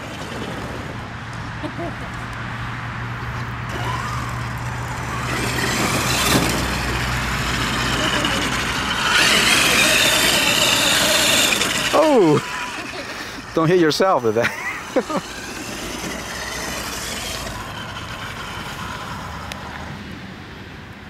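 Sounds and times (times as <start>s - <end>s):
tyres on gravel: 3.0s - 20.0s
electric motor whining: 3.7s - 19.8s.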